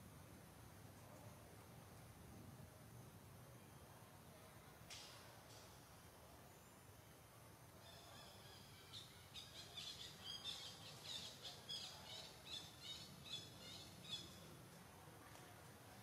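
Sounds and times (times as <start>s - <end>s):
small bird chirping: 7.8s - 14.4s.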